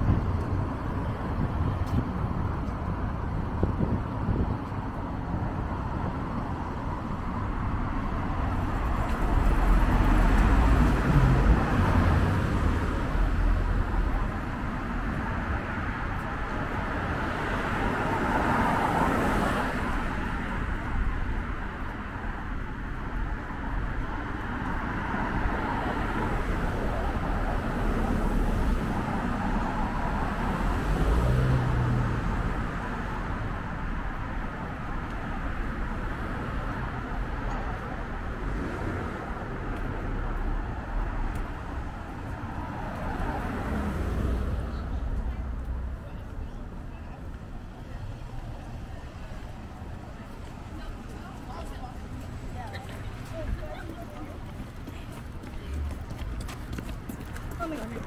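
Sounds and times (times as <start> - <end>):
car traffic: 0.0 - 58.0
car passing by: 8.2 - 14.2, 16.8 - 20.7, 24.4 - 33.7, 35.3 - 46.0.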